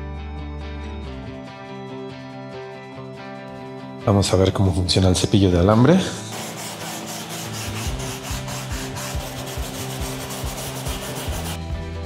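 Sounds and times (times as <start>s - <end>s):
wire brush scrubbing: 6.3s - 11.6s.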